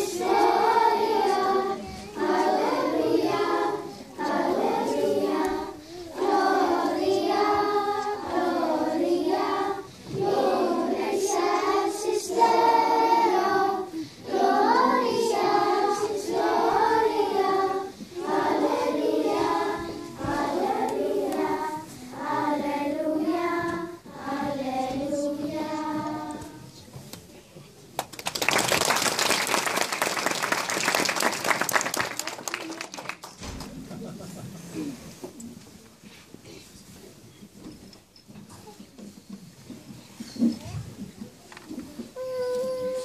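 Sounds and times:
children's choir singing: 0.0 - 27.1.

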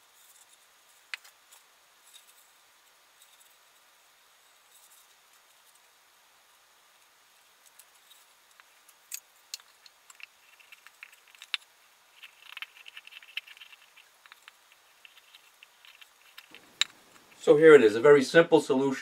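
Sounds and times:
knife carving wood: 7.6 - 17.4.

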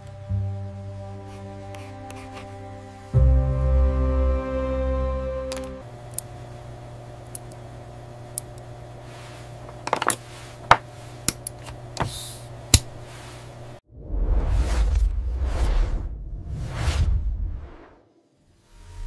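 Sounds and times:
music: 0.0 - 5.8
low steady hum: 0.0 - 13.8
whoosh: 13.9 - 19.0.

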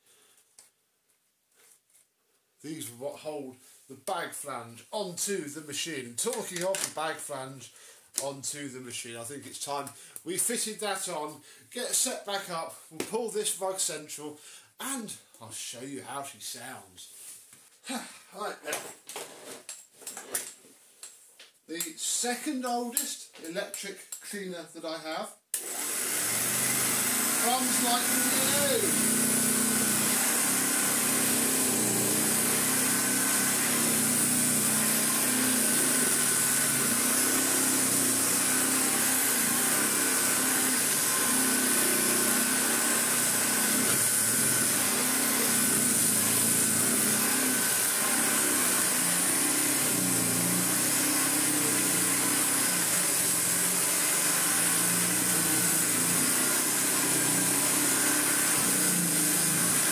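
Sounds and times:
vacuum cleaner running: 25.6 - 59.9.

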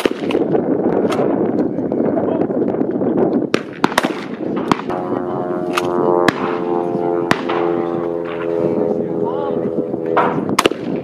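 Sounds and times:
shotgun shots: 3.6 - 5.0, 5.7 - 6.7, 7.3 - 8.4, 10.2 - 11.0
steady droning hum: 4.4 - 11.0.

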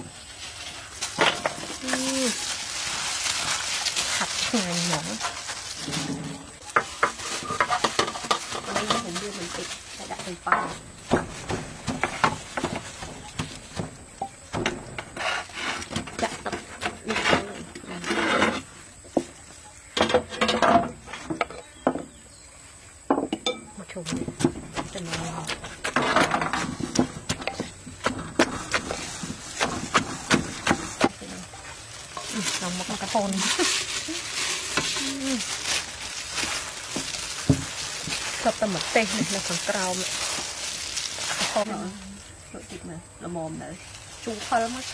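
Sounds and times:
gloved hands rustling salad: 0.0 - 16.9, 24.2 - 42.9, 43.6 - 44.9
wooden pestle pounding: 23.2 - 31.3
pestle rasping in mortar: 24.1 - 38.6.

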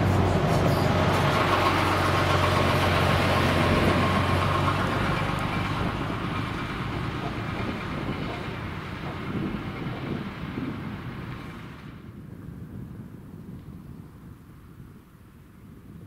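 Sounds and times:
car driving past: 0.0 - 10.6
coach diesel engine passing: 0.0 - 12.1.

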